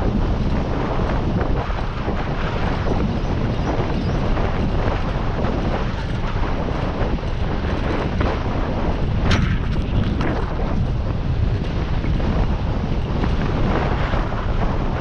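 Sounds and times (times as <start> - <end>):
wind buffeting microphone: 0.0 - 15.0
bike clicks and rattles: 9.2 - 11.0.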